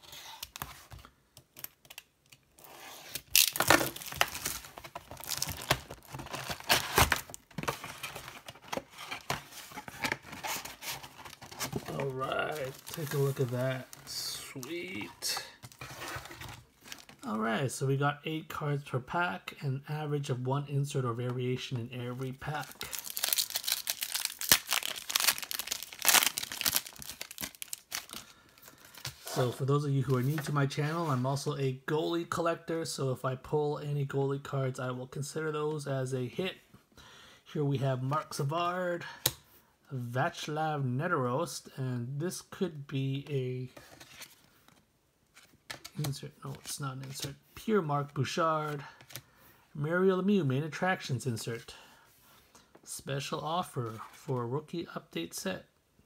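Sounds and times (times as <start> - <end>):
plastic shrink wrap tearing: 3.1 - 7.4, 22.7 - 28.3.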